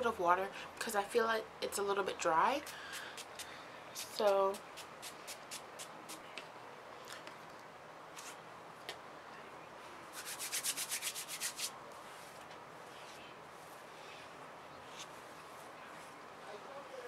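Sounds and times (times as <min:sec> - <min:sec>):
hands rubbing briskly: 0:02.6 - 0:06.2, 0:10.1 - 0:11.8.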